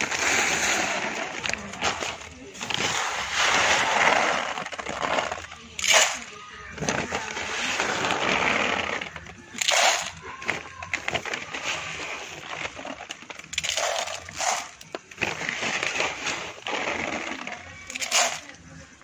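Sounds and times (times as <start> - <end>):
grain pouring into metal trough: 0.0 - 6.3, 11.6 - 18.5.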